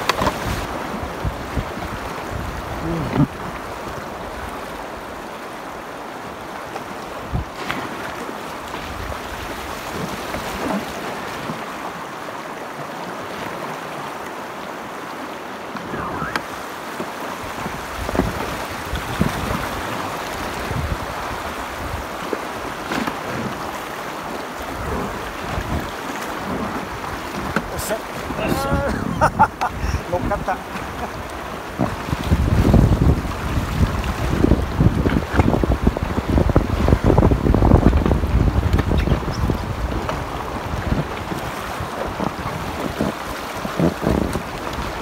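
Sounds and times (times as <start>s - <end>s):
wind on microphone: 0.0s - 5.2s, 7.1s - 8.1s, 15.8s - 16.6s, 17.4s - 23.9s, 24.6s - 45.0s
river water rushing and splashing: 0.0s - 45.0s.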